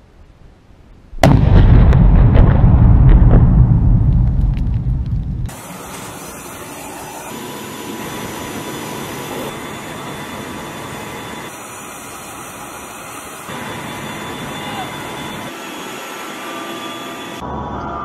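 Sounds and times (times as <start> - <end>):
explosion rumble: 1.2 - 5.6.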